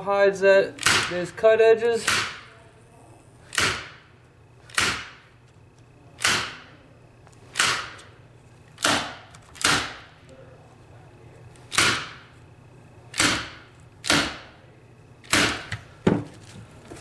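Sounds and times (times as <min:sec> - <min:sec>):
staple gun firing: 0:00.8 - 0:01.2, 0:02.0 - 0:02.5, 0:03.5 - 0:04.0, 0:06.2 - 0:06.6, 0:07.5 - 0:08.1, 0:08.8 - 0:10.0, 0:11.7 - 0:12.2, 0:13.1 - 0:14.4.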